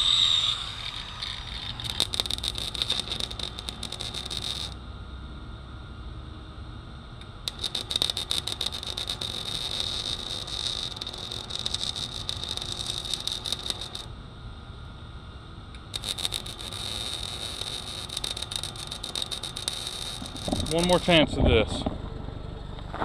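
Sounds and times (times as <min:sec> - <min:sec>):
arc welding crackle: 0:00.0 - 0:04.8, 0:07.3 - 0:14.1, 0:15.8 - 0:21.8.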